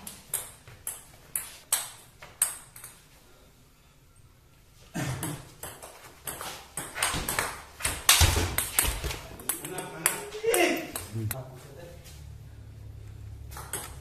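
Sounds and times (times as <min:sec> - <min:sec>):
table tennis ball hits: 0:00.0 - 0:03.0, 0:05.2 - 0:11.1, 0:13.5 - 0:14.0.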